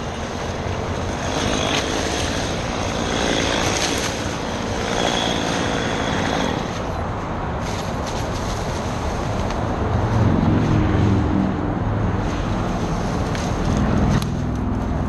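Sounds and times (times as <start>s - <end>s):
chainsaw engine idling: 0.3s - 6.8s.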